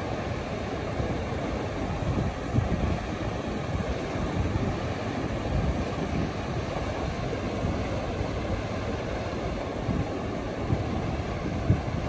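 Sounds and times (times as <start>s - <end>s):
surf washing in: 0.0s - 12.0s
wind buffeting microphone: 0.6s - 12.0s.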